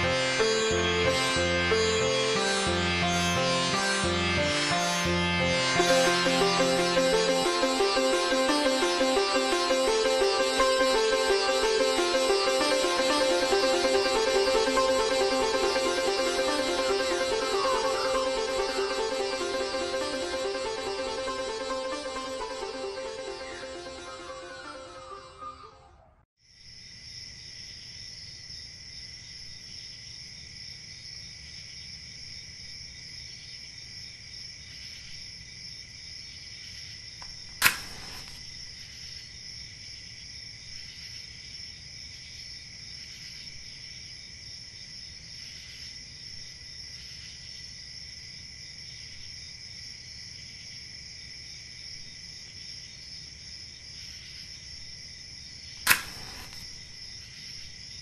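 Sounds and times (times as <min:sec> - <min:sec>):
crickets chirping: 0:26.4 - 0:58.0
match strike and flare: 0:37.6 - 0:38.5, 0:55.8 - 0:56.8.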